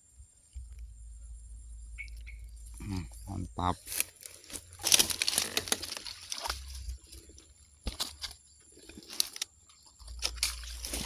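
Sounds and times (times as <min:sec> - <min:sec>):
clicks and rustles: 0:03.8 - 0:11.0
fish flapping and thrashing: 0:04.0 - 0:11.0.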